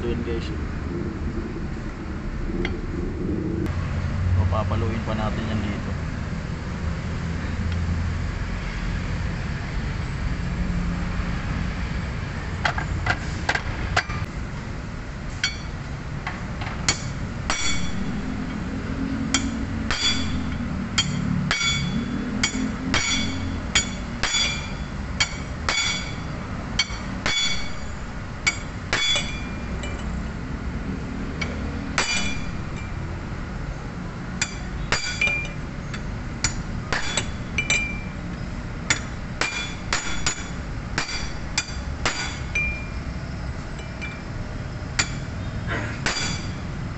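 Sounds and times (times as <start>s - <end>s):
hammer strikes with metallic ring: 16.9s - 18.2s, 19.3s - 30.1s, 31.4s - 33.0s, 34.4s - 35.6s, 36.4s - 38.1s, 38.9s - 43.0s, 46.0s - 46.7s.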